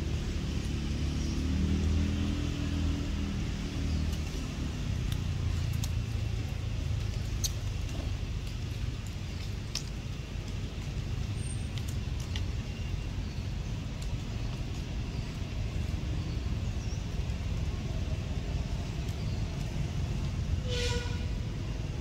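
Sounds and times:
steady low rumble: 0.0s - 22.0s
faint clicks: 5.0s - 15.9s.

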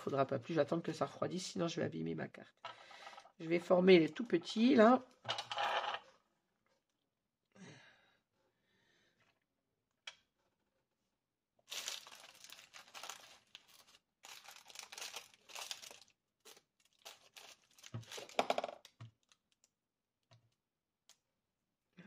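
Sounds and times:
craft materials crinkling: 11.7s - 19.7s.

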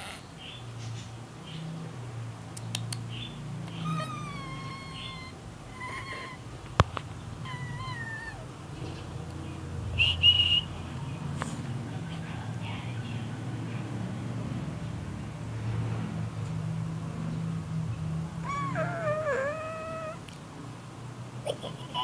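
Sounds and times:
small dog whining: 3.7s - 6.4s, 7.4s - 8.5s, 18.4s - 20.3s.

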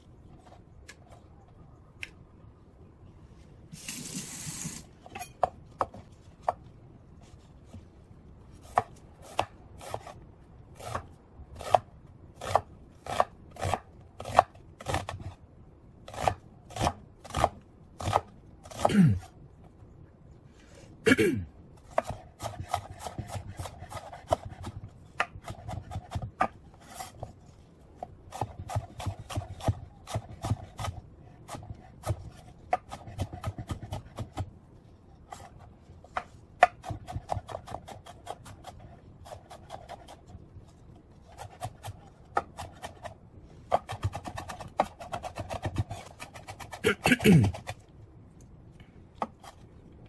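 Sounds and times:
knife chopping on wooden board: 21.9s - 26.6s, 28.3s - 34.5s, 43.7s - 47.8s.

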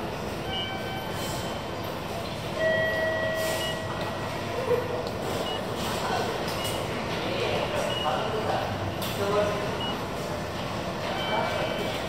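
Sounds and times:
railway station background noise: 0.0s - 12.0s
short electronic tones: 2.6s - 4.2s.

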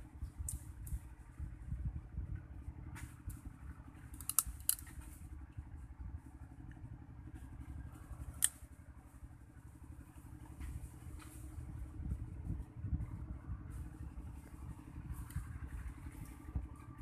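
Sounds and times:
steady low rumble: 0.0s - 17.0s
crab shell cracking: 4.2s - 4.9s.

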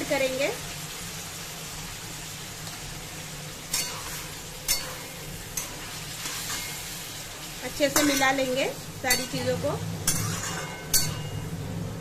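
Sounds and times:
meat sizzling in a pan: 0.0s - 12.0s
metal spatula scraping a pan: 3.7s - 11.5s.

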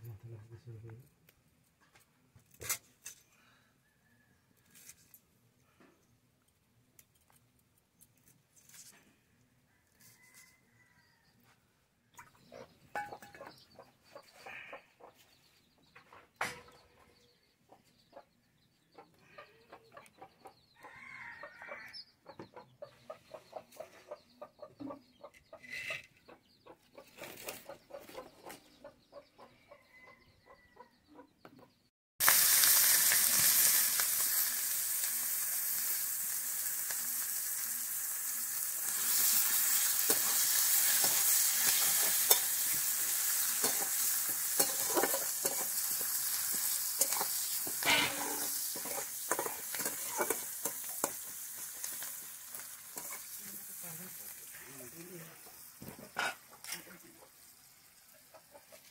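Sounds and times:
chickens clucking faintly: 8.9s - 31.9s, 41.8s - 58.9s
onions sizzling in hot oil: 32.2s - 58.9s
metal spatula stirring in wok: 38.8s - 54.5s.

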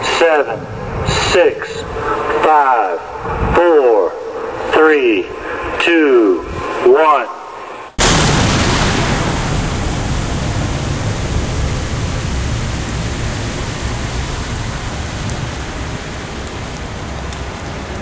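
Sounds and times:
explosion blast with deep rumble: 8.0s - 17.2s.

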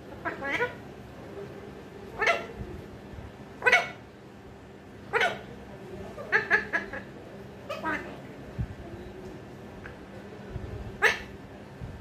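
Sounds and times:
parakeet calls: 0.1s - 0.9s, 2.1s - 2.6s, 3.6s - 4.2s, 5.0s - 5.5s, 6.1s - 8.2s, 10.9s - 11.4s.

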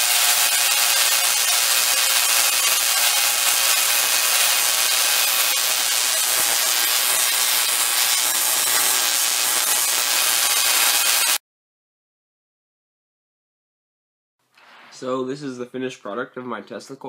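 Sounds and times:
tesla coil hissing crackle: 0.0s - 11.4s.

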